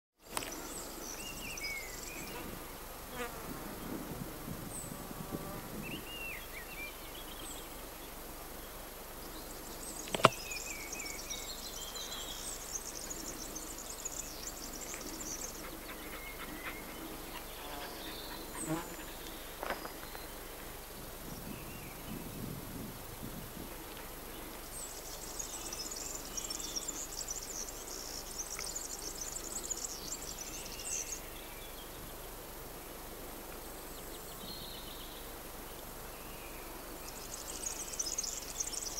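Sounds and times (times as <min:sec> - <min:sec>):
insects buzzing: 0:00.2 - 0:38.9
sharp click: 0:10.0 - 0:10.4.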